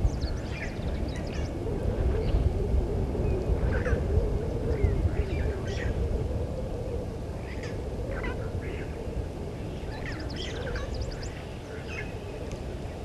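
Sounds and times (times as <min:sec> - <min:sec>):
birds chirping and whistling: 0:00.0 - 0:01.6, 0:09.6 - 0:12.2.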